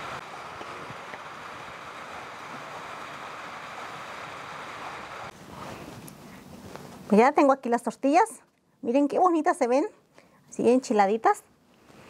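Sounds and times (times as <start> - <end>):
tortillas sizzling on hot iron: 0.0 - 5.3
faint crackles: 0.0 - 7.1.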